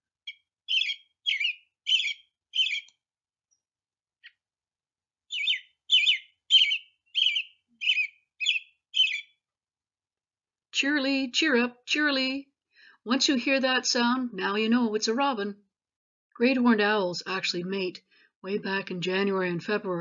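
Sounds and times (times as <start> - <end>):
robin singing whistled phrases: 0.3 - 2.9, 5.3 - 9.4.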